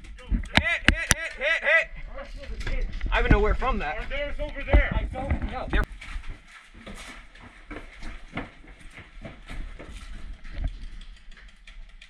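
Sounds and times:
footsteps on wooden floor: 5.4 - 10.4.

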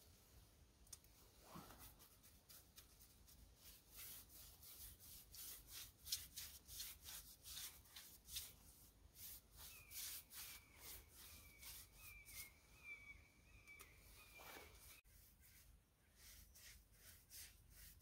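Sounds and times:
faint high chirp: 9.6 - 15.0.

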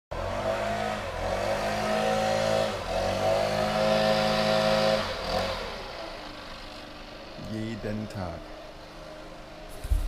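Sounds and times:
leaf blower engine running: 0.1 - 10.0.

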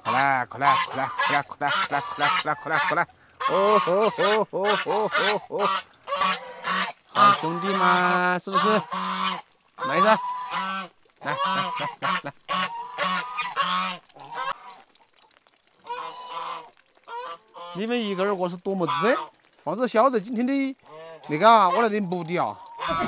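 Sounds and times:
goose honking: 0.0 - 14.6, 18.8 - 19.3, 20.8 - 21.9, 22.5 - 23.0.

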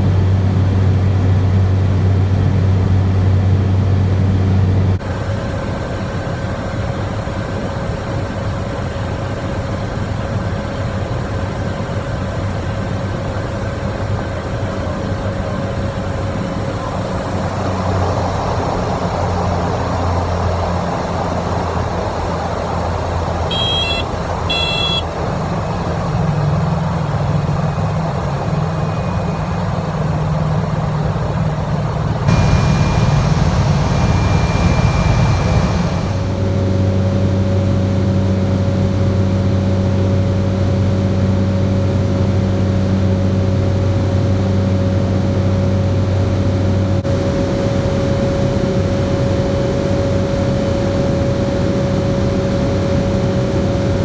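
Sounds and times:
turboprop engine droning: 0.0 - 54.0
short high electronic beeps: 23.5 - 25.0.

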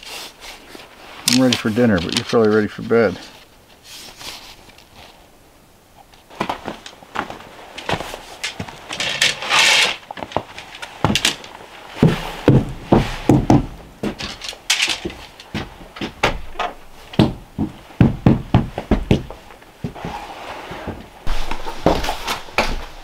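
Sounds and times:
rustling: 0.0 - 5.4, 6.0 - 23.0
boots on wooden floorboards: 6.3 - 9.0, 10.1 - 23.0
knocks and thumps on door: 12.0 - 13.8, 17.1 - 19.3.

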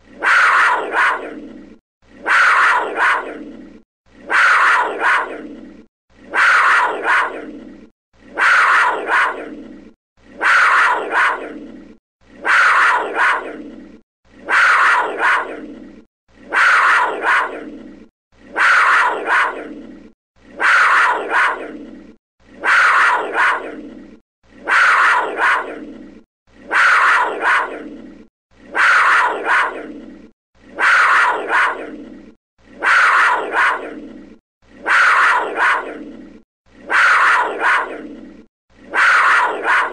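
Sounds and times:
panther calling: 0.0 - 34.2, 34.8 - 39.9.

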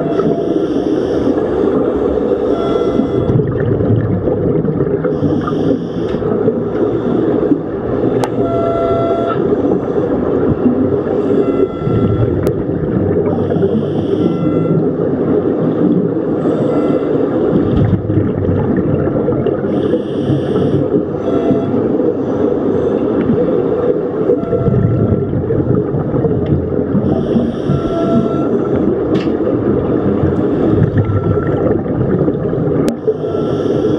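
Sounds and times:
muffled underwater rumble: 0.0 - 33.9
regulator bubbling: 0.0 - 33.9.

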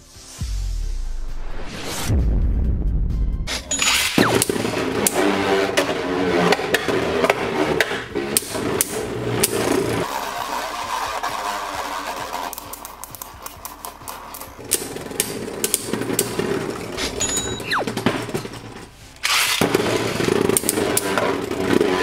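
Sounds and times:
spinning tops whirring: 8.0 - 18.6
spinning tops clashing clicks: 12.4 - 16.4.

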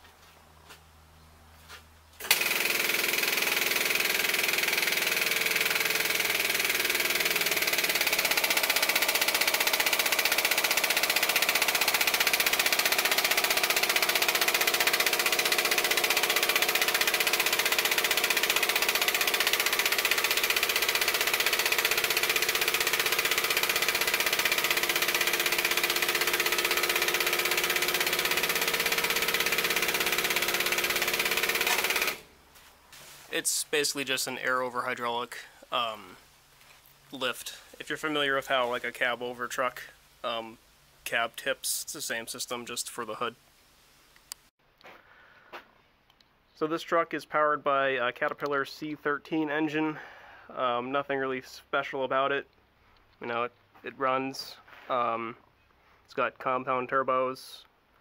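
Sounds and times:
air hydraulic hood lift running: 2.2 - 32.3.

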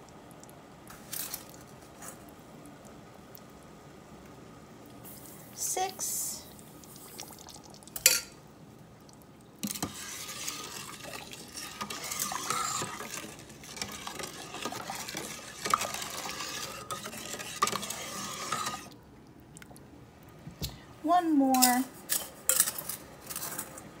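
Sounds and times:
utensil stirring liquid in pot: 9.6 - 19.0.

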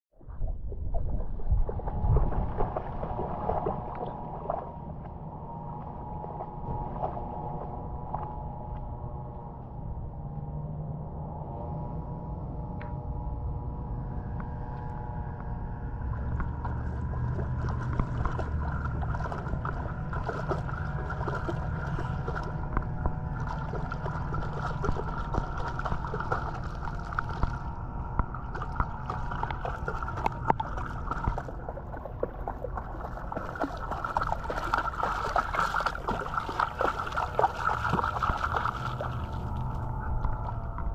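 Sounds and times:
shallow water lapping: 0.2 - 9.0, 14.5 - 40.9
dog splashing through water: 1.6 - 4.7, 16.2 - 22.7, 23.3 - 27.7, 28.5 - 39.8.

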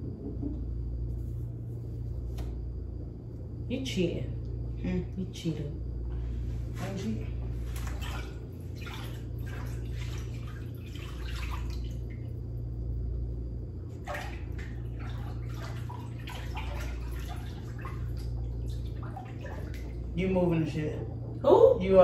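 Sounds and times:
steady low hum: 0.0 - 22.0
hands splashing in water: 7.6 - 12.0, 14.0 - 20.0
water dripping: 7.7 - 12.6, 13.9 - 20.2.

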